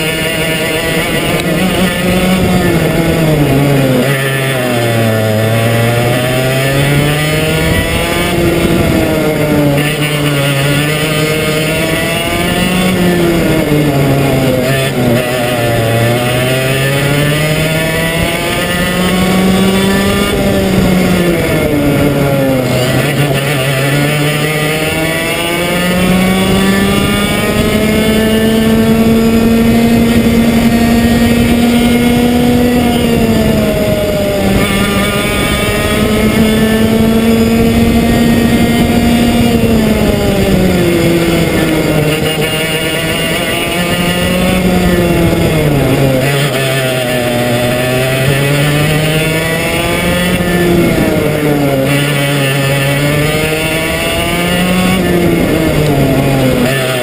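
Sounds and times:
kart engine racing: 0.0 - 57.0.

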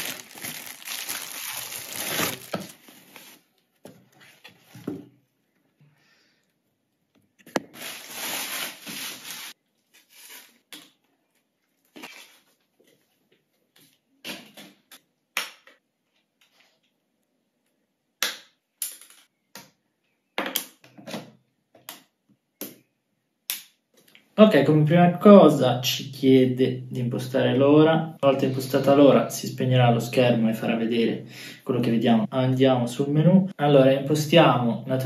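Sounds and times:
packaging rustling: 0.0 - 3.5, 7.6 - 10.6.

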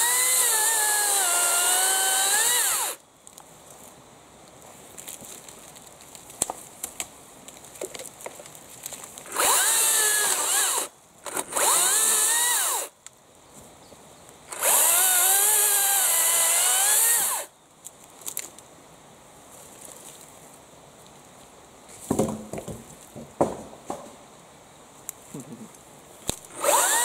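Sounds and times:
battery chainsaw cutting branches: 0.0 - 3.0, 9.3 - 12.9, 14.5 - 17.5, 26.5 - 27.0
light clicks and rustles: 3.2 - 9.2.

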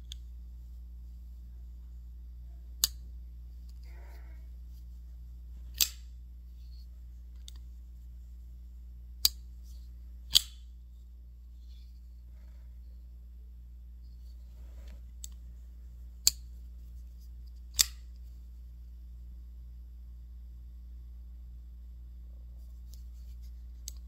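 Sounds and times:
folding knife blade clicks: 5.8 - 6.1, 10.3 - 10.6, 17.7 - 18.0.

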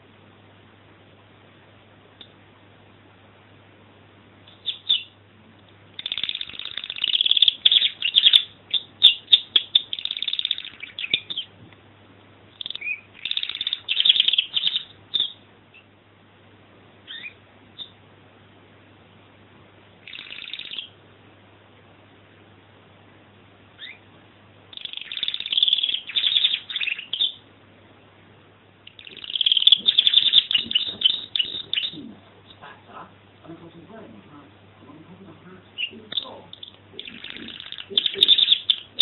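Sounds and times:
canary singing chirps and trills: 4.4 - 11.6, 12.5 - 16.0, 17.0 - 18.0, 20.0 - 21.0, 23.7 - 24.1, 24.7 - 27.5, 28.8 - 39.0.

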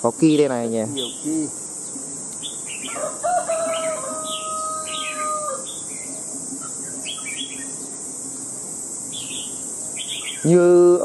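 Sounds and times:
high insect drone: 0.0 - 11.0
songbirds chirping: 0.0 - 11.0
rooster crowing: 2.7 - 5.9.

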